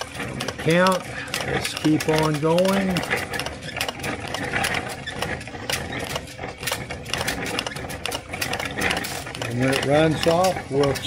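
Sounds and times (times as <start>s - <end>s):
spool clicking and rattling: 0.0s - 11.0s.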